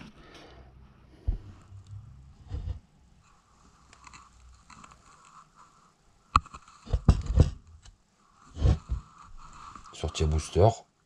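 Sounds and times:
metal part knocking and rubbing: 6.4s - 7.9s, 8.5s - 9.7s.

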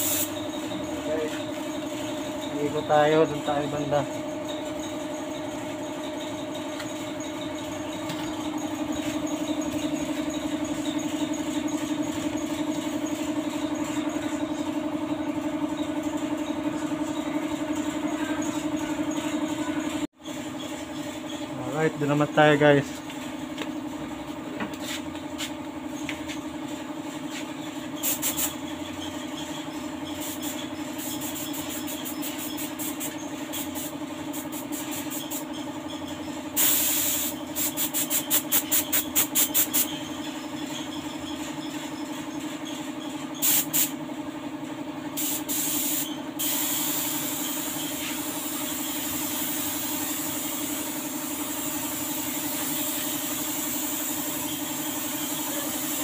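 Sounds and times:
air spray gun hissing: 0.0s - 14.7s, 27.4s - 28.7s, 30.1s - 35.5s, 36.5s - 39.9s, 43.4s - 44.0s, 45.2s - 56.0s
steady machine hum: 0.0s - 56.0s.

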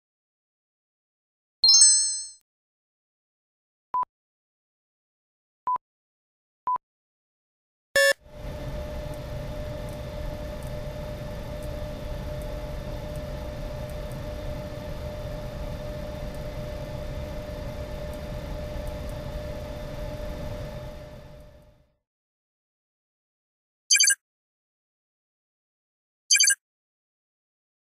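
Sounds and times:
whirring hum with constant tone: 8.1s - 21.9s.

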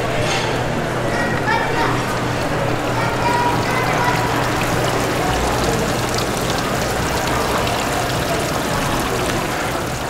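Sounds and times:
fountain water splashing: 2.9s - 10.0s.

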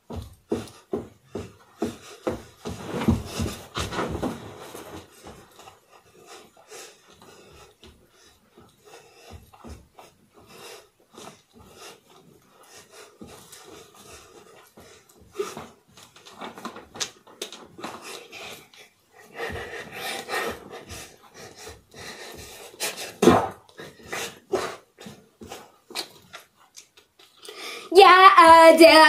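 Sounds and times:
footfalls and thumps on floor: 0.0s - 5.7s, 14.8s - 18.1s, 19.4s - 26.4s
hard breathing: 0.1s - 16.1s, 17.7s - 25.9s, 27.4s - 27.9s
clothes rustling: 0.5s - 27.5s.

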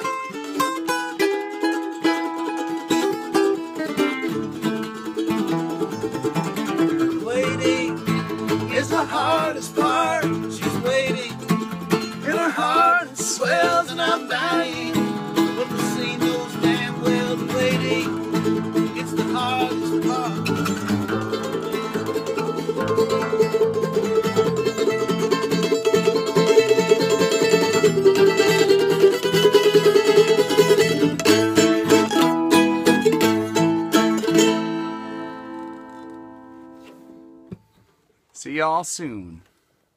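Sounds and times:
mandolin and acoustic guitar: 0.0s - 37.7s
person singing: 6.9s - 22.2s.

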